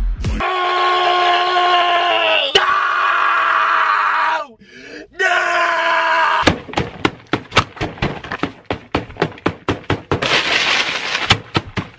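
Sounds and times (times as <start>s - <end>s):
person yelling: 0.4s - 6.6s
food smashed on a table: 6.4s - 11.9s
crashing noise: 6.5s - 11.9s.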